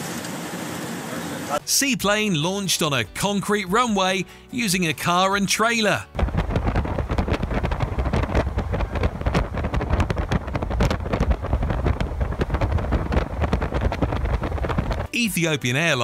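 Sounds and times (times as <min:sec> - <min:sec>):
wind buffeting microphone: 0:06.1 - 0:15.2.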